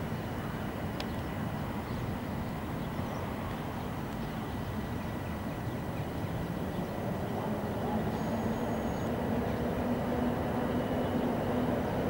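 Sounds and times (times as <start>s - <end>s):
train rumbling: 5.7s - 12.0s.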